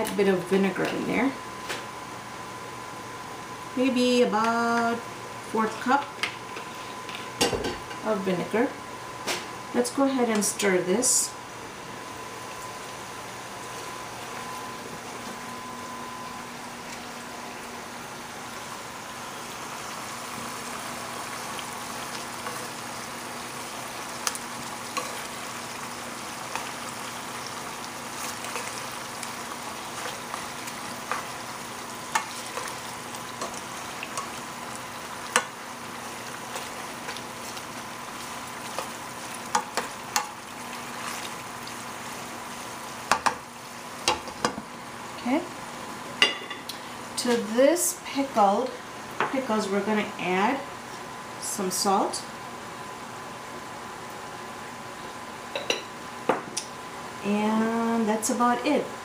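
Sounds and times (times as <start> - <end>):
chicken frying in oil: 16.6 - 50.7.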